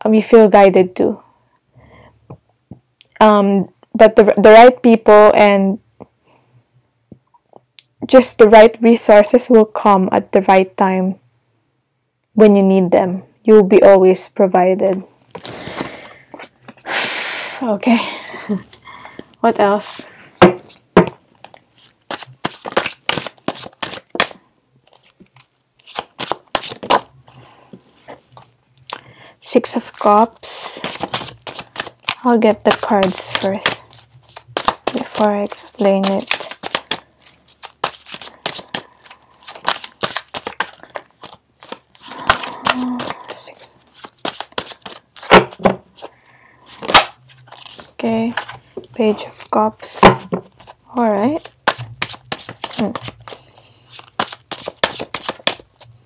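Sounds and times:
cards being shuffled: 0:14.9 - 0:16.9, 0:19.6 - 0:27.1, 0:27.8 - 0:56.0.

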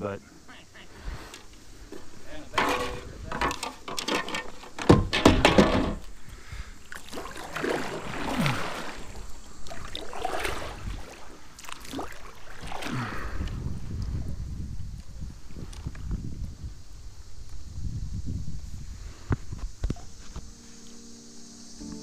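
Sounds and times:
handling knocks: 0:02.5 - 0:06.0
water splashing: 0:06.8 - 0:13.4
fish thrashing in water: 0:06.9 - 0:13.1.

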